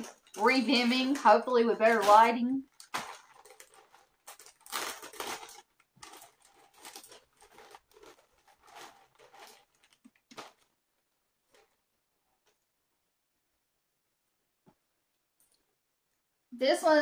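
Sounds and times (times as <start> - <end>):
plastic bag crinkling: 0.0 - 11.9.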